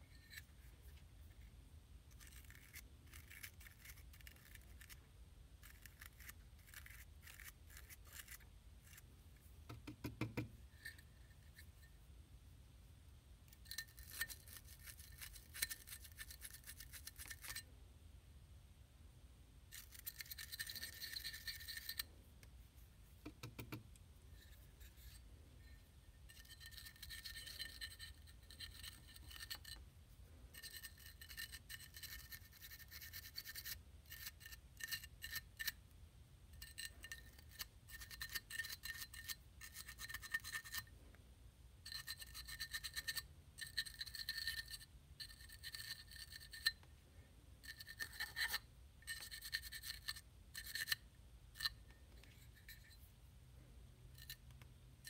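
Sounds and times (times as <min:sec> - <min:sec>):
wire brush scratching metal: 0:02.1 - 0:09.1, 0:13.6 - 0:17.6.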